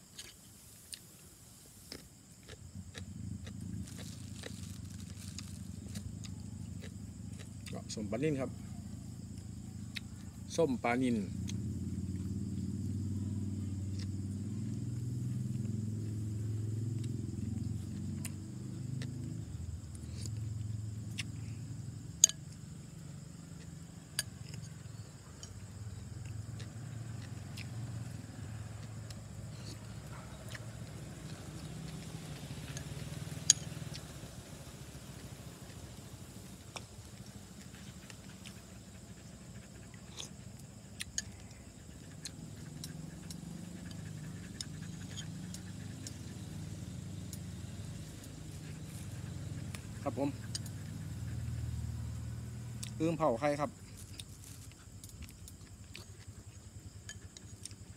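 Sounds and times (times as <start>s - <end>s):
steady low hum: 0.0s - 53.0s
crickets chirping: 0.0s - 57.9s.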